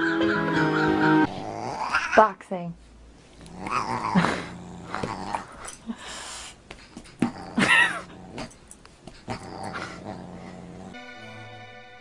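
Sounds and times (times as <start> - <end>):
dog growling and yipping: 1.2 - 2.3, 3.3 - 6.0, 7.0 - 11.0.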